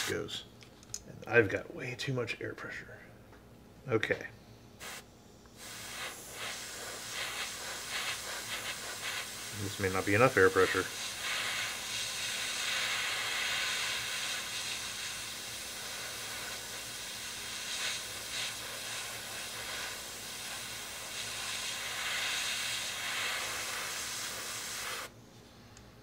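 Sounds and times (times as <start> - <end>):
airbrush spraying: 4.8 - 25.1.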